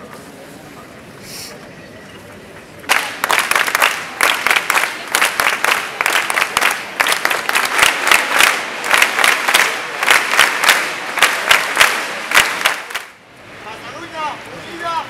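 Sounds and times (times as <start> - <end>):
close single hand claps: 2.9 - 13.2
crowd applauding: 2.9 - 13.2.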